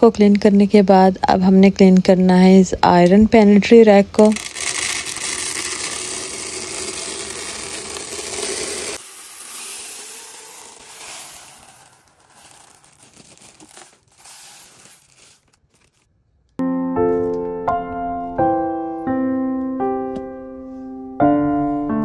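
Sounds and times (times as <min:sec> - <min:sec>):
beans clicking into tub: 0:04.2 - 0:16.0
dried pulses pouring into container: 0:04.2 - 0:16.0
piano music: 0:16.6 - 0:22.0.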